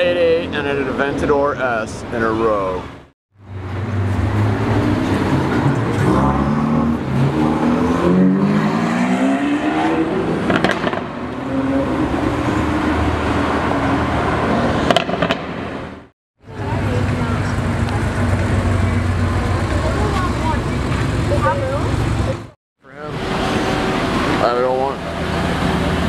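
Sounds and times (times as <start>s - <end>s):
sports car engines accelerating: 3.5s - 15.4s.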